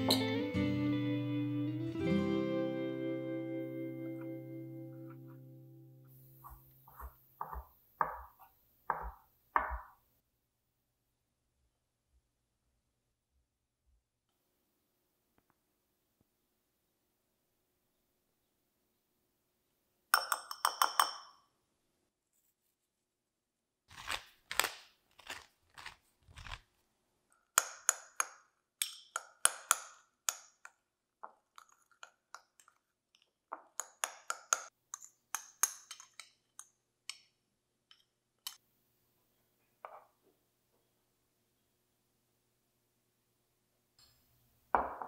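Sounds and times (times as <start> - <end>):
spoon tapping glass bowl rim: 20.2 - 21.4.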